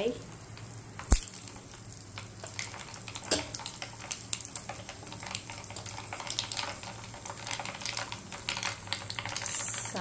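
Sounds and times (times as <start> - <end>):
seeds sizzling in hot oil: 0.0 - 10.0.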